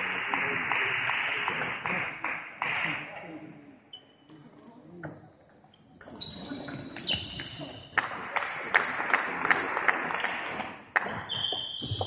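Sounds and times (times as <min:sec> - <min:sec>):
shoes squeaking on floor: 0:06.1 - 0:07.9, 0:11.0 - 0:12.0.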